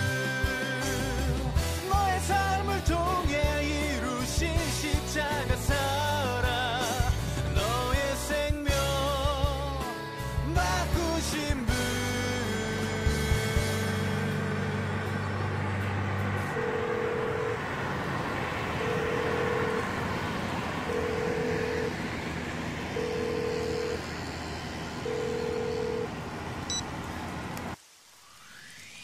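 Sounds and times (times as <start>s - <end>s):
background music: 0.0s - 17.5s
traffic noise hiss: 17.6s - 23.0s, 23.9s - 29.0s.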